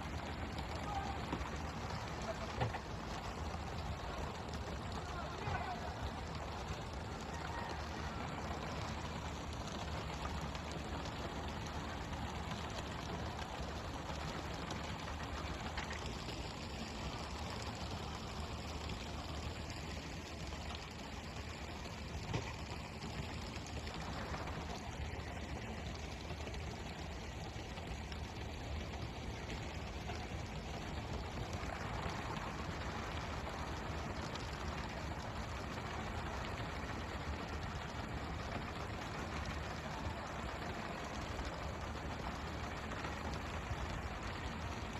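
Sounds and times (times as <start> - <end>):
low engine hum: 0.0 - 44.9
water rushing along boat: 0.0 - 44.9.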